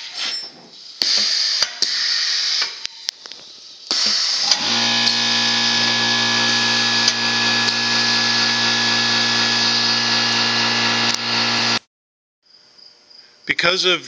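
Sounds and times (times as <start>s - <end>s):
air compressor motor drone: 4.1s - 11.9s.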